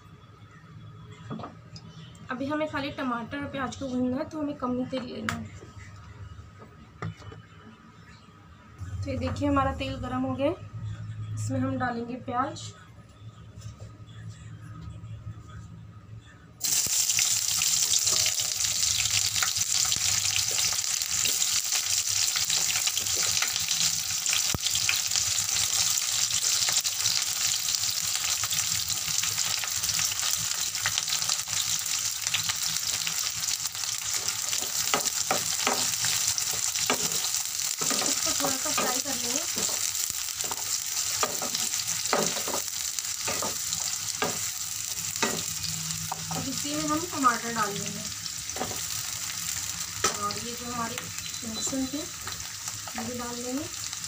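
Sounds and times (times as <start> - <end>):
onions sizzling in hot oil: 16.6 - 54.0.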